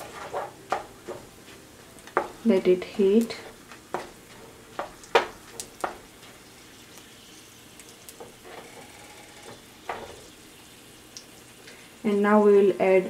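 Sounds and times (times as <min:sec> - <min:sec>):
wooden spoon knocking on pan: 0:00.0 - 0:01.3, 0:02.1 - 0:02.6, 0:03.3 - 0:06.4
spices sizzling in hot oil: 0:00.0 - 0:13.0.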